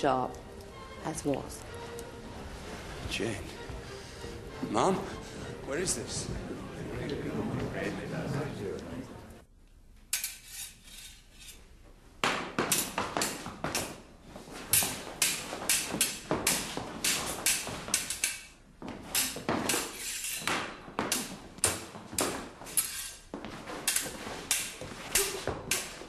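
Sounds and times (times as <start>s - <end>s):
fencing swords clashing: 10.1s - 26.0s.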